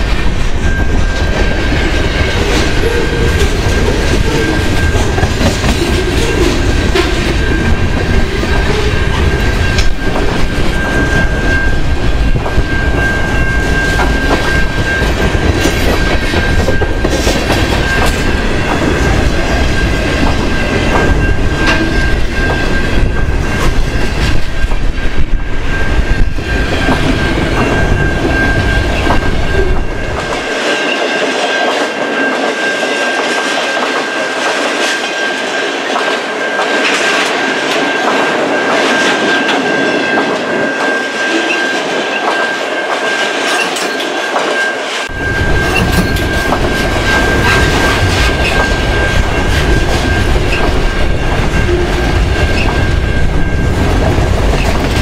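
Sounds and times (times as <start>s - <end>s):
wind buffeting microphone: 0.0s - 30.7s, 45.1s - 55.0s
train wheels rumbling on rail: 0.0s - 55.0s.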